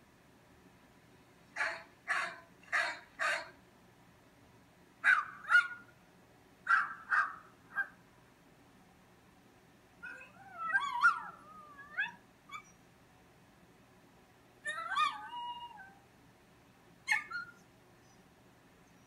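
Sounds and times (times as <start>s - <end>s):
dog yelping and whining: 10.0s - 12.8s, 14.7s - 16.0s, 17.1s - 17.7s.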